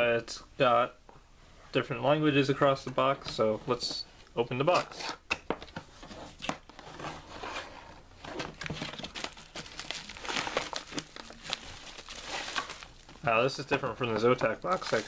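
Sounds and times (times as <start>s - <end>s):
cardboard handled: 5.5s - 15.0s
bubble wrap crinkling: 8.5s - 15.0s.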